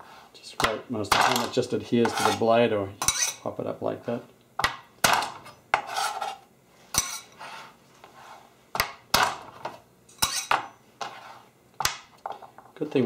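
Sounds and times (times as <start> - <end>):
garlic scraping on cutting board: 1.2 - 3.4, 5.4 - 8.5, 9.5 - 11.5.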